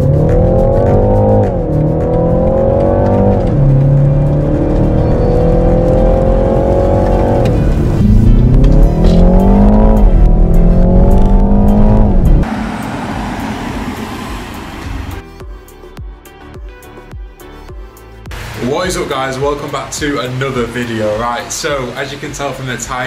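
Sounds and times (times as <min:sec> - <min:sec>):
car engine accelerating through gears: 0:00.0 - 0:15.2.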